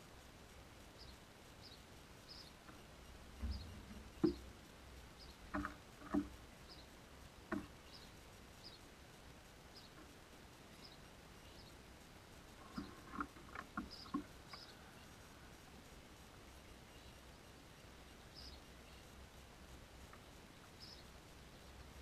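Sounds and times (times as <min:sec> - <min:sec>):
birds pecking on wooden bench: 0:02.2 - 0:08.4, 0:09.0 - 0:16.5, 0:18.5 - 0:22.0.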